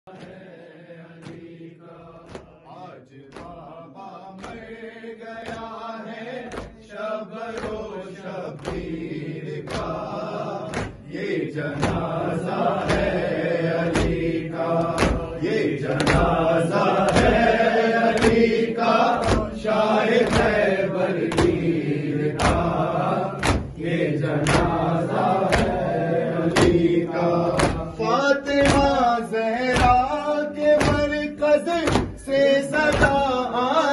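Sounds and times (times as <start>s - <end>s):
men chanting a lament: 0.1s - 33.9s
rhythmic chest-beating slaps: 0.1s - 33.9s
man leading chant over microphone: 0.4s - 33.9s.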